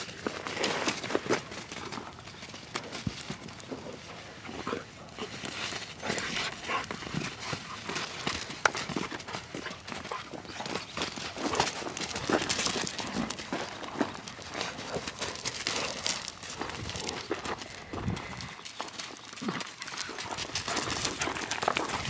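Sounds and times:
paws scuffling and thudding: 0:00.0 - 0:22.0
dog noises: 0:03.5 - 0:17.5.

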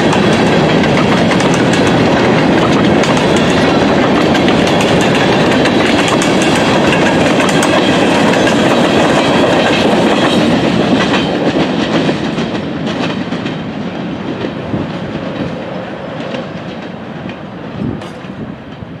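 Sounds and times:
steel wheels clicking on track: 0:00.0 - 0:13.6
freight train rolling past: 0:00.0 - 0:19.0.

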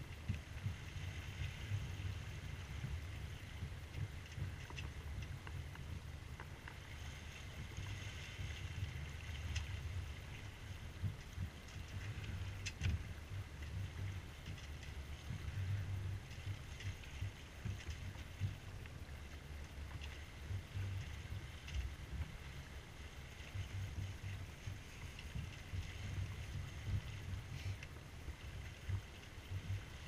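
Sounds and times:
water swishing along hull: 0:00.0 - 0:30.0
small splashes and clicks: 0:03.9 - 0:10.4, 0:11.0 - 0:22.0.

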